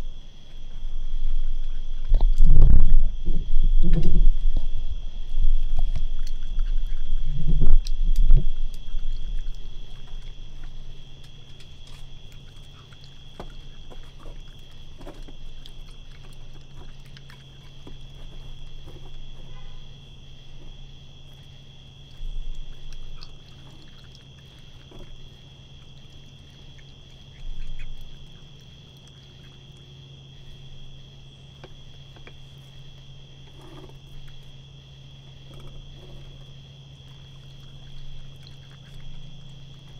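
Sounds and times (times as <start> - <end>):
steady low hum: 0.0 - 39.9
loud low bumps: 0.9 - 9.8
raccoon chewing clicks and smacks: 5.6 - 19.2, 20.3 - 39.9.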